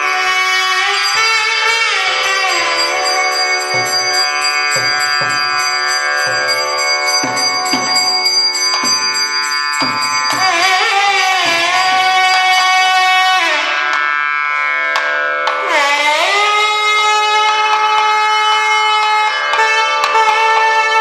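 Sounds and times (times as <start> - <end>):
double-reed horn melody: 0.0 - 7.4, 10.4 - 13.9
barrel drum strokes: 2.2 - 12.3.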